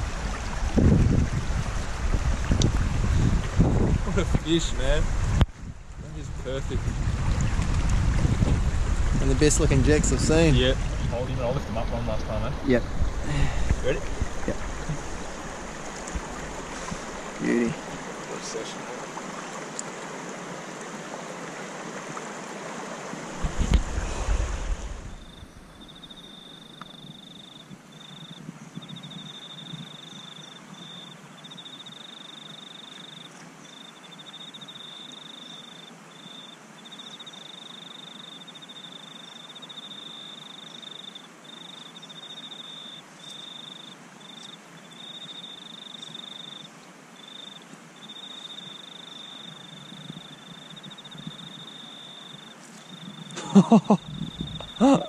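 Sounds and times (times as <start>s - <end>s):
river water rushing over stones: 0.0s - 5.4s, 6.9s - 25.3s
low rumble on microphone: 0.0s - 17.2s
insect trilling: 25.2s - 55.0s.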